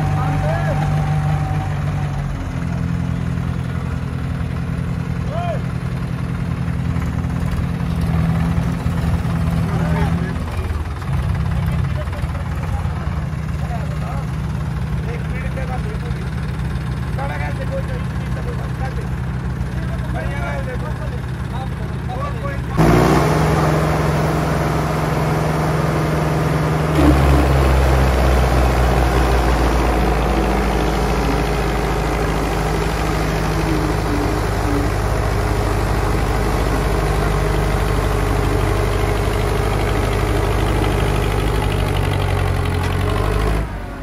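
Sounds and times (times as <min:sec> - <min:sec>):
diesel tractor engines under load: 0:00.0 - 0:44.0.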